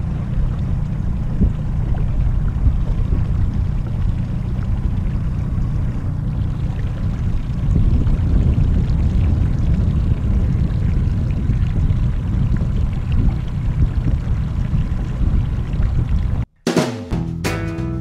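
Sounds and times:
small boat motor rumbling: 0:00.0 - 0:16.5.

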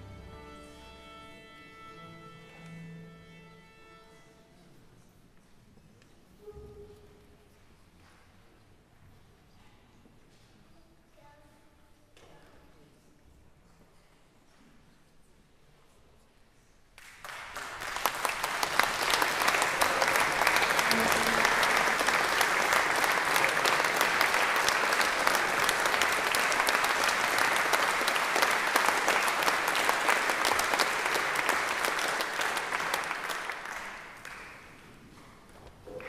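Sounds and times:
audience applauding: 0:17.0 - 0:35.0.

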